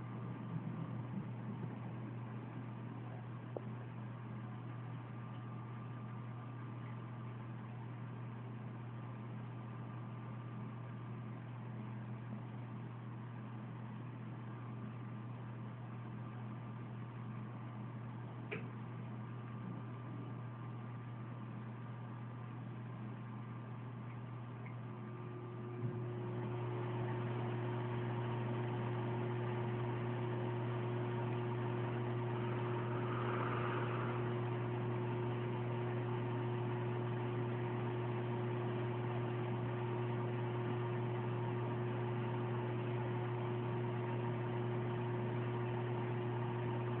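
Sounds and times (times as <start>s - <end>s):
humidifier humming: 0.0s - 47.0s
click: 18.5s - 18.8s
steady high tone: 32.3s - 34.9s.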